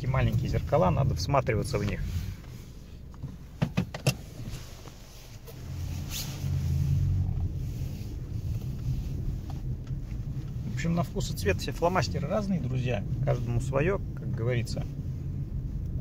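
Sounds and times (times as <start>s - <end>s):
car reversing rumble: 0.0s - 16.0s
sharp clicks and knocks: 3.1s - 4.2s.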